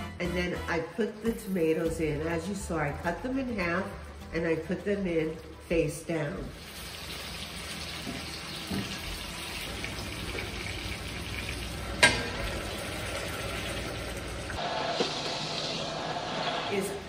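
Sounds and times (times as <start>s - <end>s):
tomatoes sizzling in oil: 1.2s - 16.9s
lid clanking on pan: 12.0s - 12.5s.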